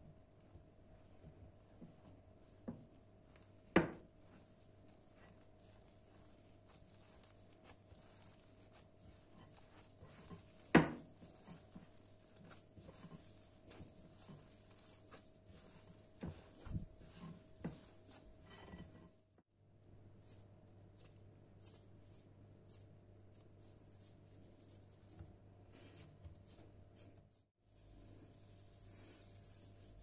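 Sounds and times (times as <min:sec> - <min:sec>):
hands squishing cookie dough: 0:02.5 - 0:18.9, 0:20.2 - 0:24.8.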